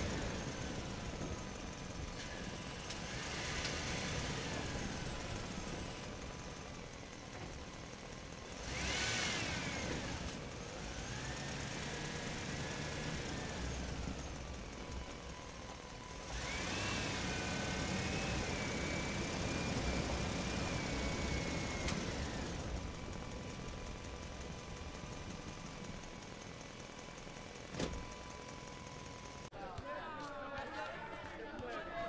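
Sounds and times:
small electric motor whining: 0:08.5 - 0:23.1.

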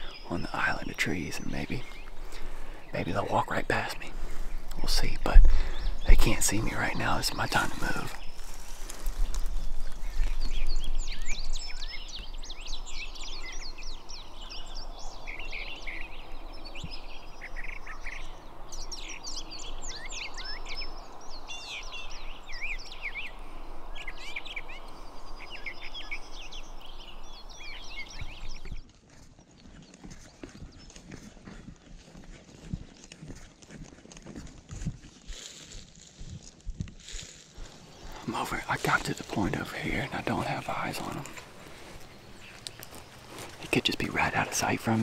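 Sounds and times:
songbirds chirping and singing: 0:00.0 - 0:45.0
rustling background noise: 0:00.2 - 0:14.2, 0:24.2 - 0:45.0.

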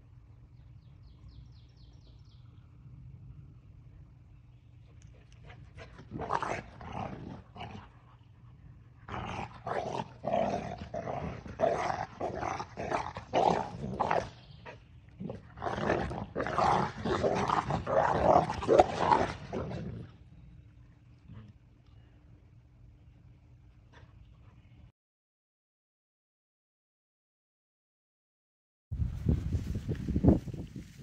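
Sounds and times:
dogs growling and snarling: 0:05.1 - 0:21.6.

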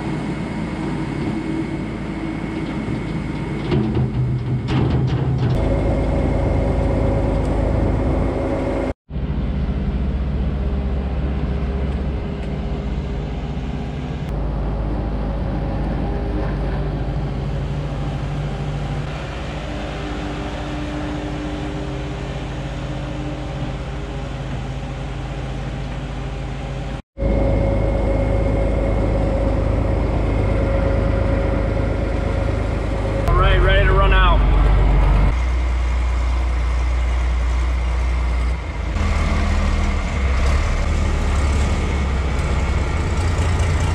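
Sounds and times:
skid steer loader engine: 0:00.0 - 0:43.9
tractor driving feed mixer: 0:00.0 - 0:43.9.

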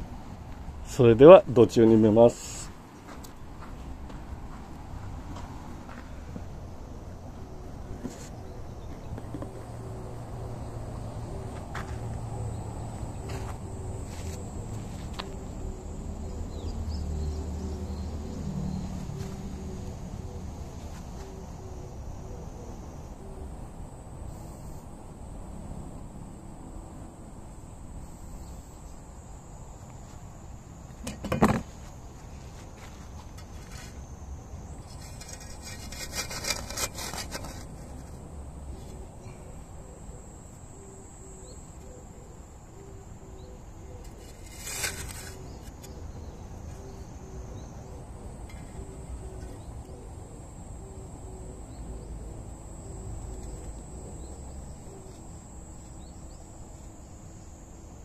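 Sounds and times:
hand tools scraping soil: 0:34.8 - 0:38.2, 0:44.0 - 0:45.8
high insect buzz: 0:40.0 - 0:58.0.

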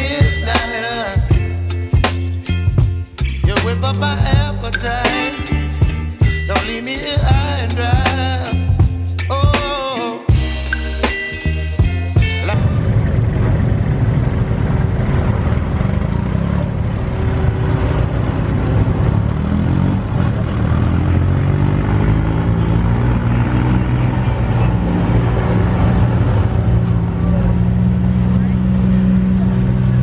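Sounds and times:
drag car engines idling: 0:11.8 - 0:21.4, 0:22.5 - 0:30.0.

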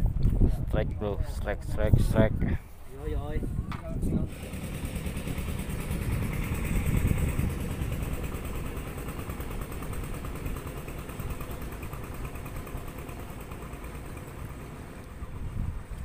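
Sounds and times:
engine running: 0:04.2 - 0:16.0.

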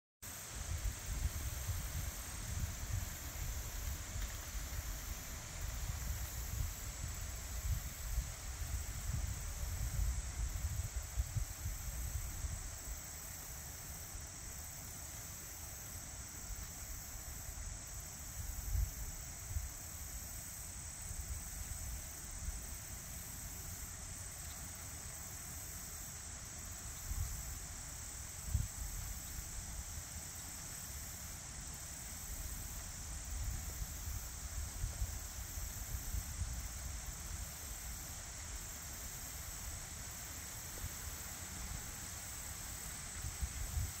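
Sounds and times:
high-pitched insect chorus: 0:00.2 - 0:44.0.

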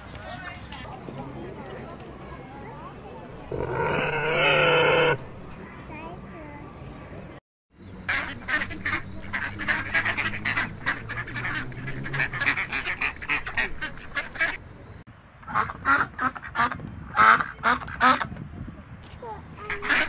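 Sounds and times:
ducks quacking: 0:03.5 - 0:05.8, 0:08.0 - 0:14.6, 0:15.5 - 0:18.3, 0:19.6 - 0:20.0.

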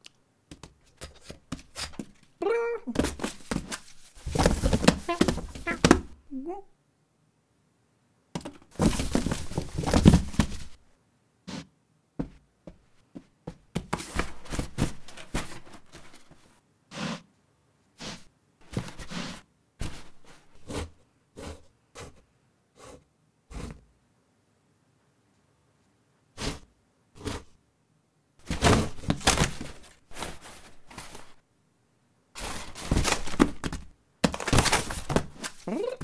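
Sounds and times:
cardboard rustling: 0:00.6 - 0:06.2, 0:08.4 - 0:10.8, 0:13.8 - 0:16.5, 0:18.6 - 0:20.9, 0:28.4 - 0:31.4, 0:32.4 - 0:36.0
box scraping across floor: 0:03.0 - 0:06.0, 0:08.8 - 0:10.8, 0:16.9 - 0:17.3, 0:18.0 - 0:21.7, 0:26.4 - 0:27.6, 0:28.4 - 0:31.4, 0:32.4 - 0:33.6.

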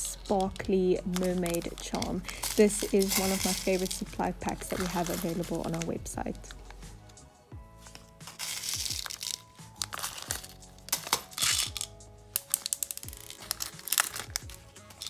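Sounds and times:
plastic beads clicking: 0:00.0 - 0:04.0, 0:07.9 - 0:15.0
plastic bag crinkling: 0:00.0 - 0:06.8, 0:07.7 - 0:15.0
background music: 0:00.0 - 0:15.0.

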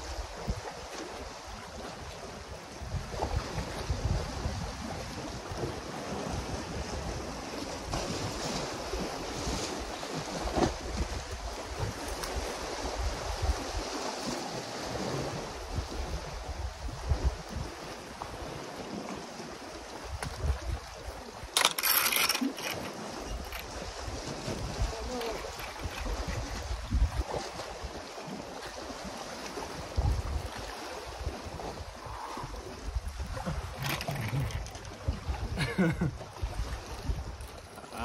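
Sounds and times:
wind buffeting microphone: 0:02.8 - 0:14.0, 0:22.5 - 0:27.9, 0:29.6 - 0:37.6.

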